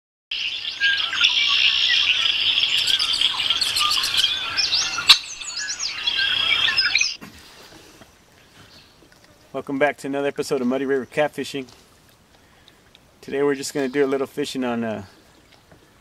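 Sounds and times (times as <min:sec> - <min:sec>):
birds chirping: 0:00.3 - 0:07.2.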